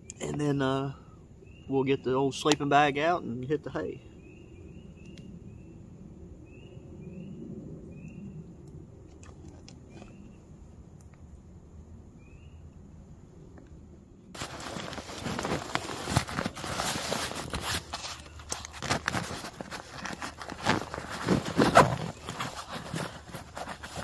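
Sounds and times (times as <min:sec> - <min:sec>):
backpack rustling on dry leaves: 0:14.4 - 0:24.0.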